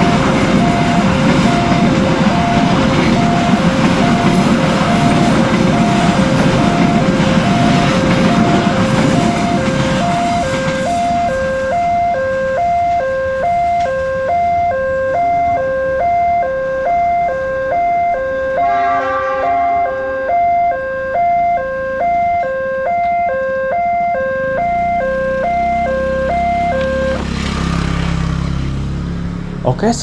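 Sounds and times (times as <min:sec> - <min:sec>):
motorcycle engines rumbling: 0:00.0 - 0:13.0, 0:24.5 - 0:30.0
two-tone crossing alarm: 0:00.0 - 0:27.4.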